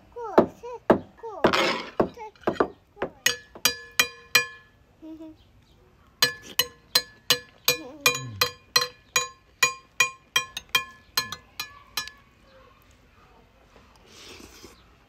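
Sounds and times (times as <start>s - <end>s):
cutlery clinking on ceramic plate: 6.2s - 12.2s.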